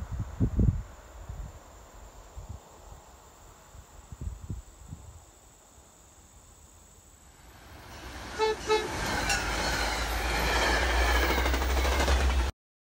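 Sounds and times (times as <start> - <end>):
train rumbling past: 7.2 - 12.5
train horn toots: 8.2 - 11.0.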